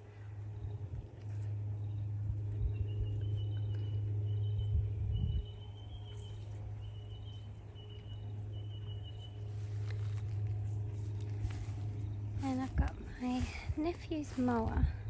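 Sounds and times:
steady low hum: 0.0s - 15.0s
wind on microphone: 4.4s - 6.2s, 12.5s - 15.0s.

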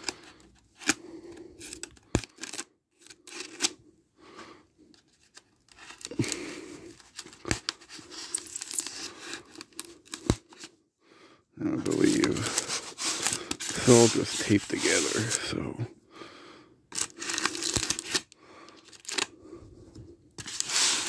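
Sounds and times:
tape scraping and tearing: 1.6s - 3.8s, 5.0s - 10.8s, 11.8s - 15.4s, 16.9s - 19.3s, 20.4s - 21.0s.

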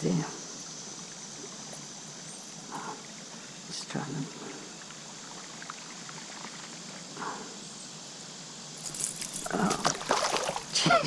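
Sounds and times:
creek water rushing: 8.3s - 11.0s.

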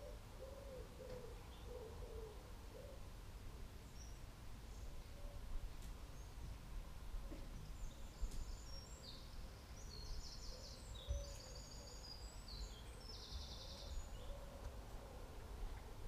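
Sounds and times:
small birds chirping: 3.8s - 16.0s.

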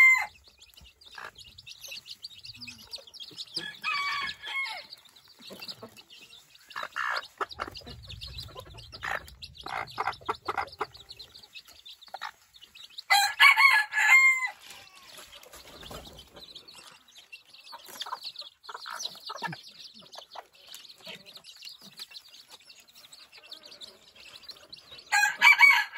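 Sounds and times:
hen clucking: 0.0s - 13.7s, 14.8s - 25.3s
chicks peeping: 0.0s - 25.9s
loud drawn-out chicken call: 13.1s - 15.1s.

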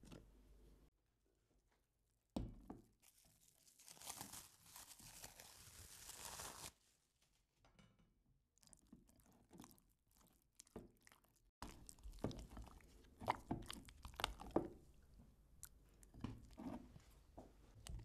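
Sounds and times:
spatula squelching in thick cream: 8.6s - 18.0s.

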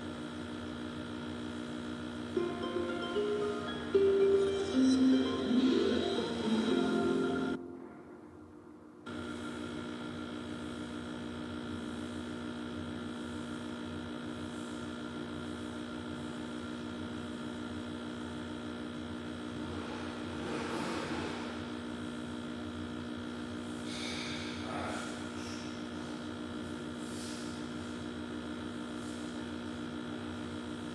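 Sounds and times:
television electrical hum: 0.0s - 30.9s
ident music: 2.4s - 8.1s.

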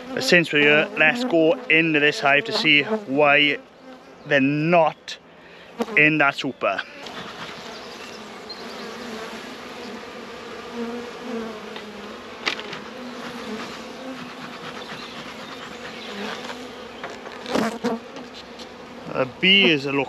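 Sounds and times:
honeybees buzzing: 0.0s - 20.0s
hive tool clicking on wooden frames: 11.2s - 18.8s.

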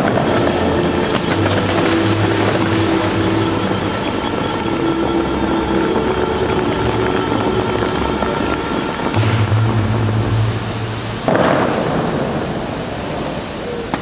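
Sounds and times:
fountain water rushing: 0.0s - 14.0s.

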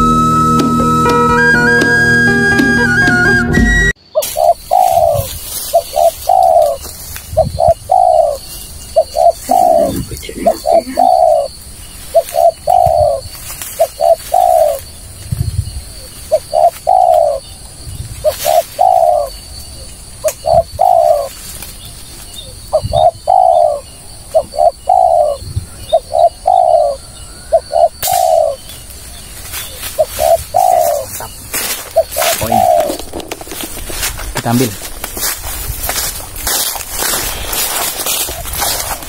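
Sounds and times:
dove cooing: 4.3s - 6.8s, 7.4s - 8.4s, 9.0s - 13.2s, 13.8s - 14.8s, 16.3s - 17.4s, 18.2s - 19.3s, 20.4s - 21.3s, 22.7s - 28.6s, 30.0s - 35.0s.

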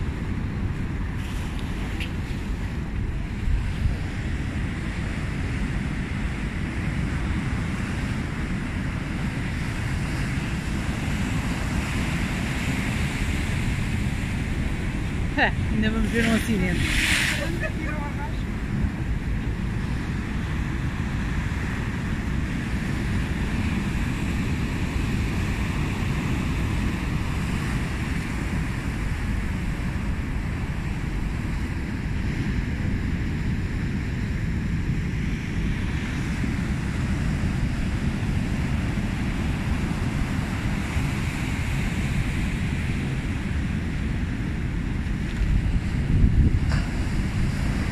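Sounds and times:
wind buffeting the microphone: 0.0s - 47.9s
surf breaking on rocks: 11.1s - 20.2s.

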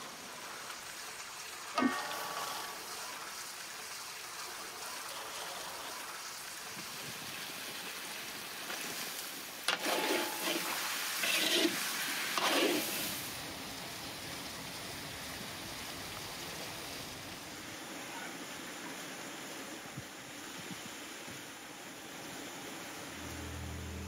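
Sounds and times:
food sizzling in oil: 0.0s - 13.6s
metal skimmer scraping pan: 1.8s - 3.6s, 9.7s - 13.2s.

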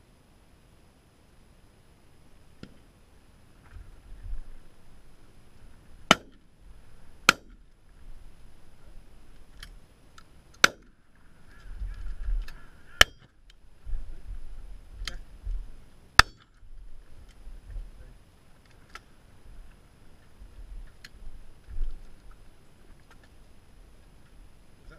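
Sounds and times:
wind rumbling on microphone: 3.7s - 9.6s, 11.3s - 16.0s, 16.6s - 18.2s, 19.3s - 23.2s
shotgun shots: 6.1s - 6.4s.

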